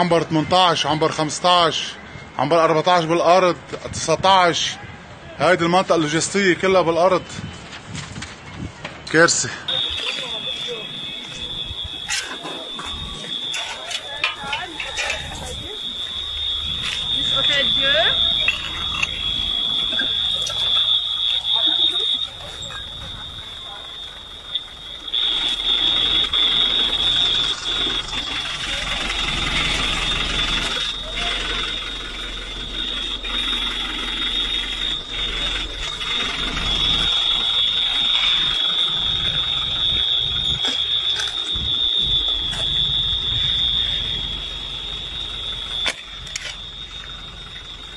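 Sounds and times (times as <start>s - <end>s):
high-pitched electronic alarm tone: 9.7s - 47.9s
low rumble: 14.8s - 47.9s.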